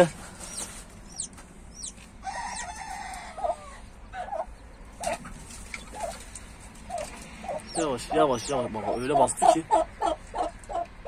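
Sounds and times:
chicks peeping: 0.0s - 11.0s
poultry clucking: 0.0s - 11.0s
rooster crowing: 2.2s - 3.8s.

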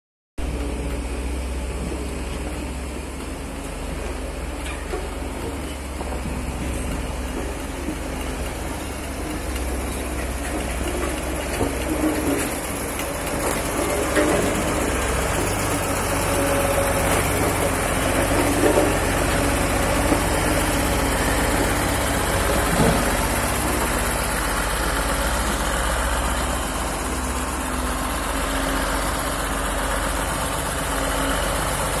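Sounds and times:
road roller diesel engine: 0.4s - 32.0s.

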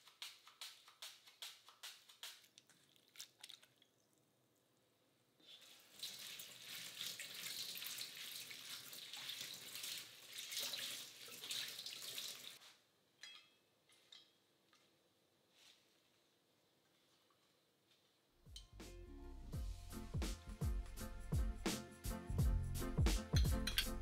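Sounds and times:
tap water running into strainer: 5.6s - 12.6s.

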